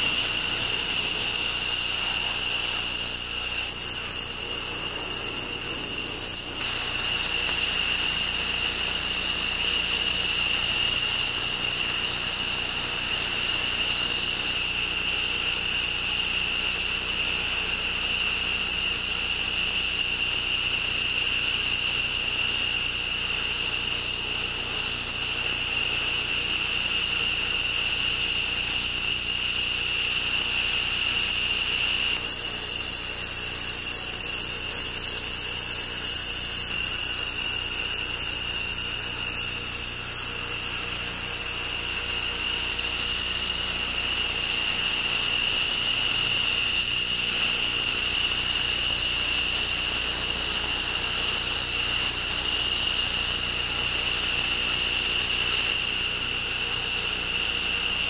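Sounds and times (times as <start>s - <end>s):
jet engines idling: 0.0s - 8.7s.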